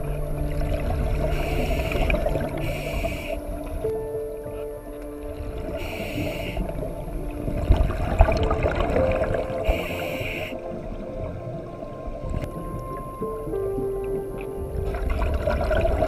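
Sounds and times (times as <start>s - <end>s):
exhaled air bubbling underwater: 0.0s - 16.0s
faint steady tones: 0.0s - 16.0s
regulator hissing inhalations: 1.4s - 3.5s, 5.8s - 6.8s, 9.7s - 10.6s.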